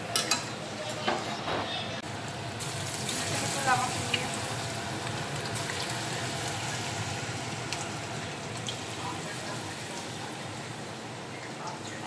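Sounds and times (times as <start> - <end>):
chicken sizzling in oil: 2.0 - 12.0.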